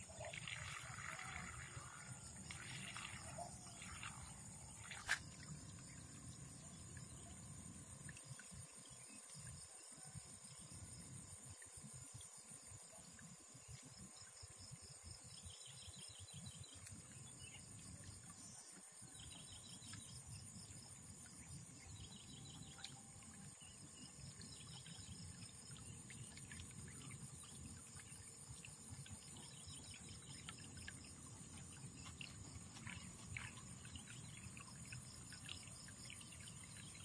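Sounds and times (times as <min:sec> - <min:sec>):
insects chirping: 0:00.0 - 0:37.0.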